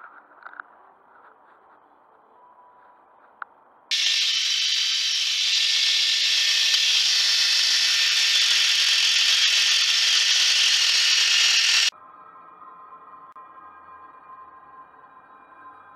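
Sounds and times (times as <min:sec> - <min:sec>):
electric drill running: 0:03.9 - 0:11.9
sandpaper hissing on spinning wood: 0:03.9 - 0:11.9.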